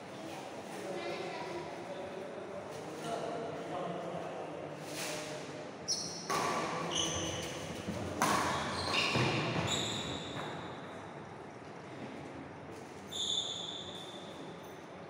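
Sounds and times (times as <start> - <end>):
shoes squeaking on floor: 5.9 - 10.8, 13.0 - 14.7
racket striking shuttlecock: 8.2 - 8.7.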